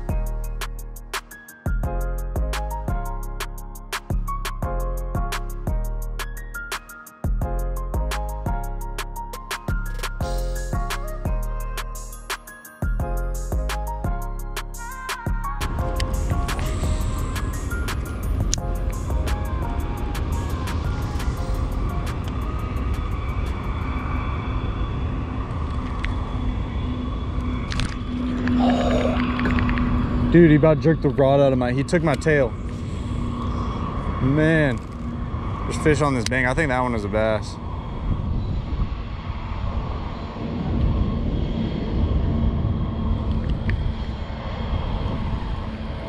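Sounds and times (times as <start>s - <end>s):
wind rumbling on microphone: 15.2s - 46.0s.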